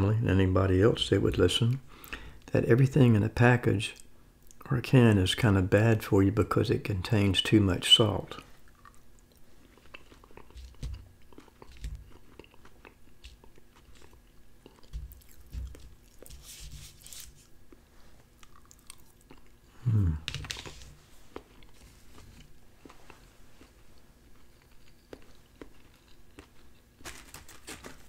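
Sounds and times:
close chewing with mouth clicks: 8.4 - 16.4, 17.7 - 19.6, 21.3 - 27.0
low vocal sound: 19.7 - 20.4.

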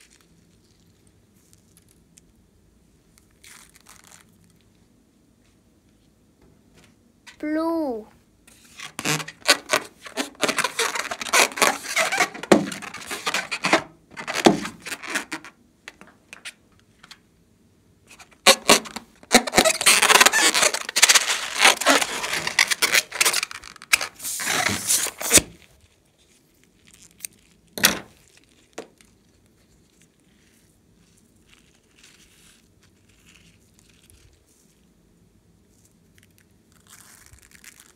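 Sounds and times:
hands rubbing rubber balloon: 8.5 - 15.6, 18.2 - 25.6.

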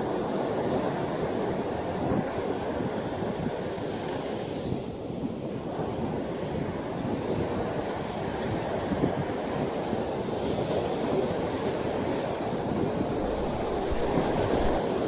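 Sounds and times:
wind: 0.0 - 15.0
ocean waves breaking: 13.0 - 15.0.

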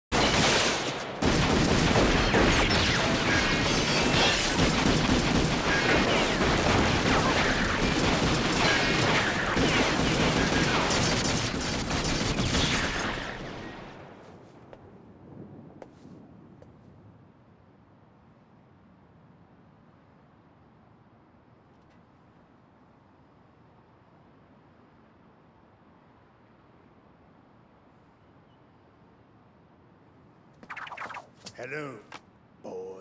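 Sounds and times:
automatic gunfire: 0.2 - 13.1.

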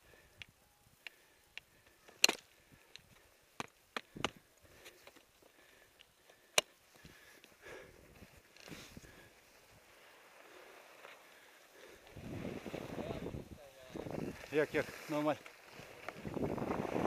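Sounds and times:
skis and poles clicking on snow: 1.0 - 17.0.

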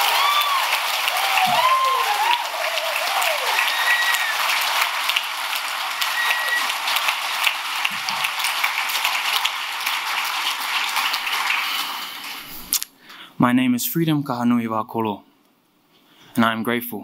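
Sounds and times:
audience applauding: 0.0 - 12.7
high whistle from crowd: 3.5 - 4.4, 6.0 - 6.7.

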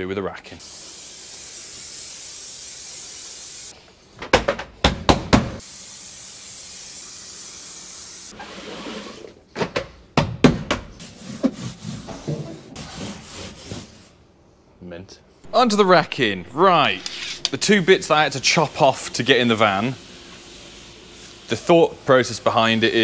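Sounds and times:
aerosol spray hissing: 0.6 - 3.7, 5.6 - 8.3, 15.5 - 23.0.

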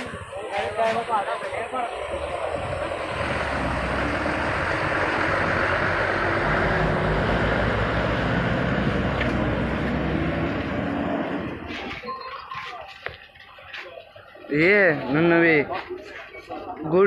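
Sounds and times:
heavy truck passing: 0.0 - 12.0.

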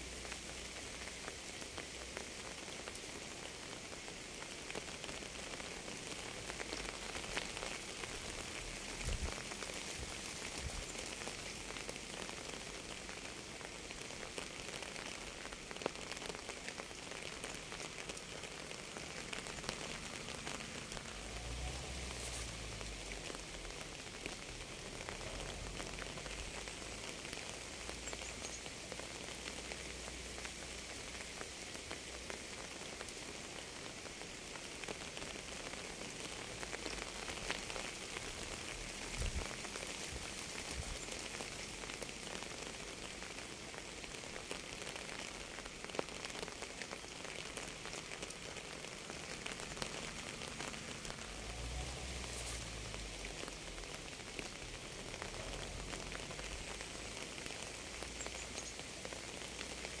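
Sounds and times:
steady rain falling: 0.0 - 60.0.

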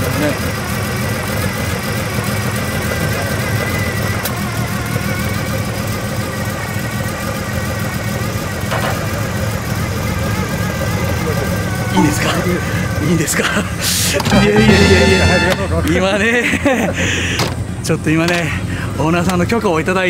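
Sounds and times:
car engine idling: 0.0 - 14.9.

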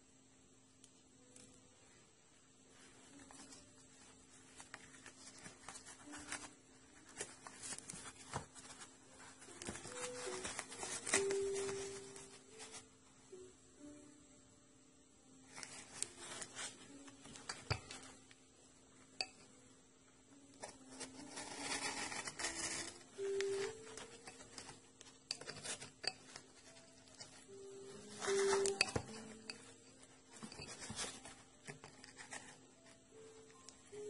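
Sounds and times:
faint background music: 0.0 - 34.0
cardboard rustling and scraping: 4.5 - 12.8, 20.6 - 24.8, 30.3 - 33.0.

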